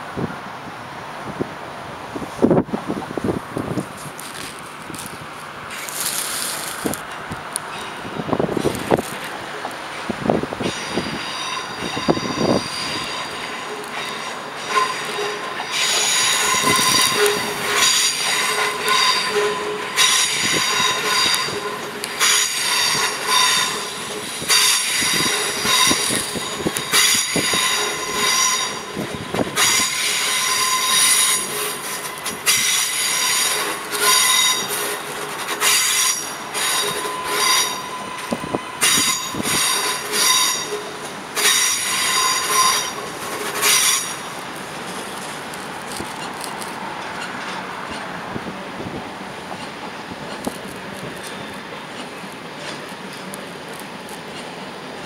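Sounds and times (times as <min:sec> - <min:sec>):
train running rumble: 0:00.0 - 0:55.0
train wheels squealing: 0:10.0 - 0:44.4.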